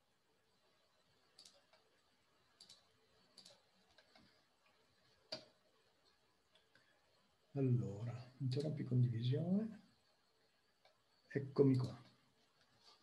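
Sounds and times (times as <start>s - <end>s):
computer mouse clicks: 1.3s - 1.9s, 2.5s - 6.9s, 11.7s - 12.2s.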